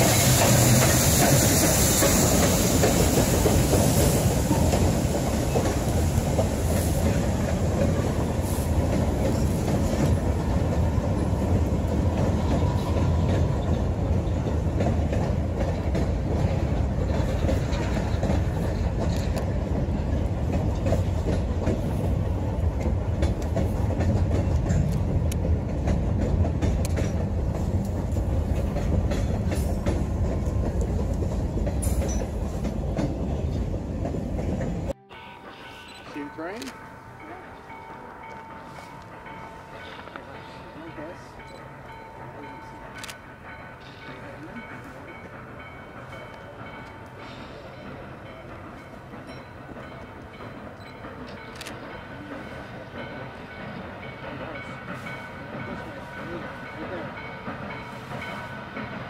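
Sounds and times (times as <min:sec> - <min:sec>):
wheels clicking over rail joints: 0:00.0 - 0:35.0
freight train rumbling past: 0:00.0 - 0:59.0.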